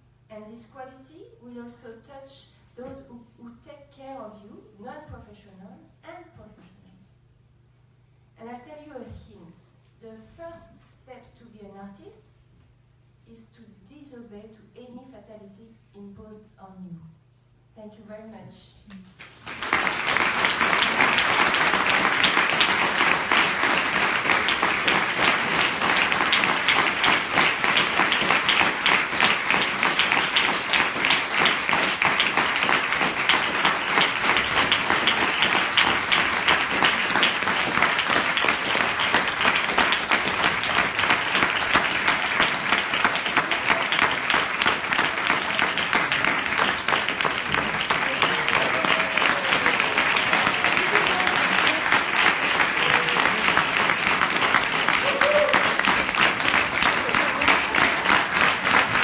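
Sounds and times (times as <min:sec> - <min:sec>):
audience applause: 0:19.3 - 0:59.0.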